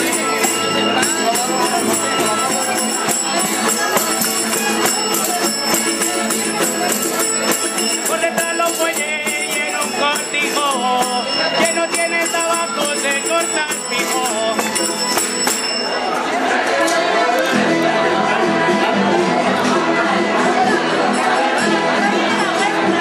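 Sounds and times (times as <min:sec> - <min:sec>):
jingling percussion: 0:00.0 - 0:16.4
acoustic guitars strummed: 0:00.0 - 0:23.0.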